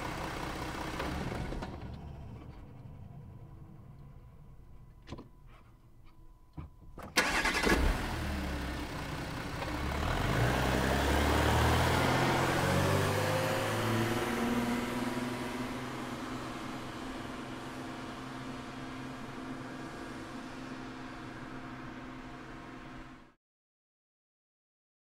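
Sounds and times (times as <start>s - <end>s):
car engine starting and revving: 7.2s - 17.6s.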